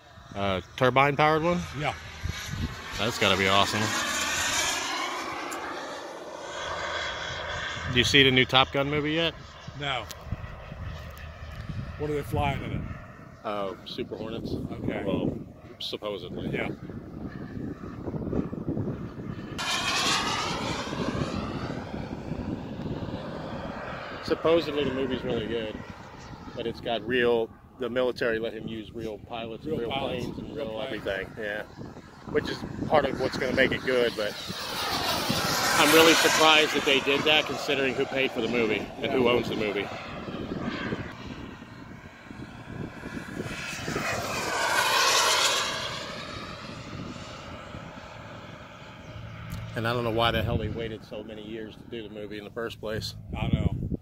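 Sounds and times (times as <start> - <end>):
model jet flying past: 0.0 - 54.0.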